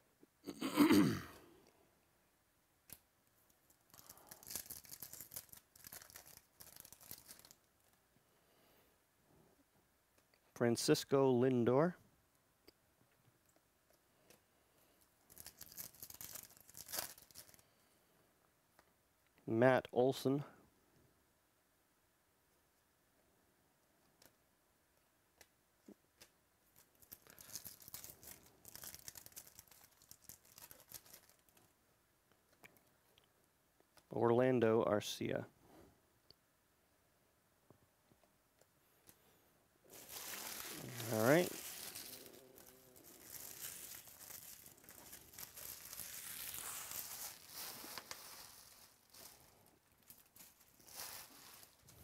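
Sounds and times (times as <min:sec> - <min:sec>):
foil wrapper tearing and crinkling: 0:03.8 - 0:07.7, 0:15.3 - 0:17.6, 0:26.8 - 0:31.6, 0:39.9 - 0:52.0.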